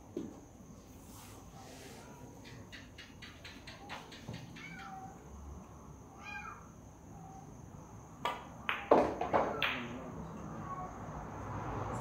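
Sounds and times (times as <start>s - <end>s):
billiard balls colliding: 8.2s - 10.0s
cue tip hitting cue ball: 8.3s - 9.9s.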